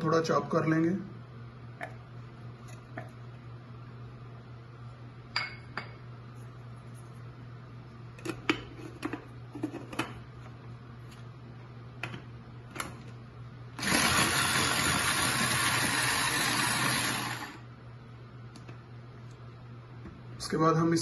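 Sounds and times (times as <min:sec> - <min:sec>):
food chopper motor running: 0:13.8 - 0:17.7.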